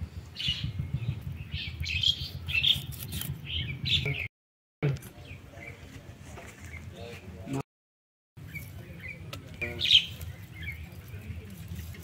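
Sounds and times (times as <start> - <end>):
small birds chirping: 0.2 - 4.3, 8.4 - 12.0.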